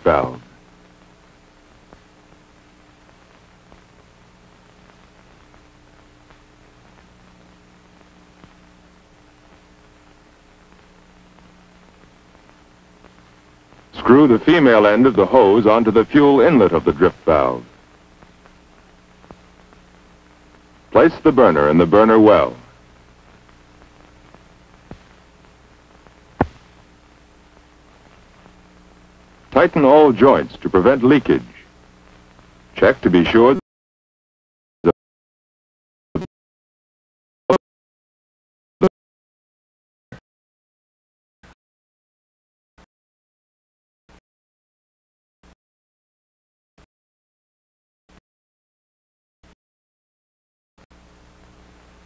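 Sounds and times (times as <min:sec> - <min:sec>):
film soundtrack hiss and hum: 0:00.0 - 0:33.6, 0:50.9 - 0:52.0.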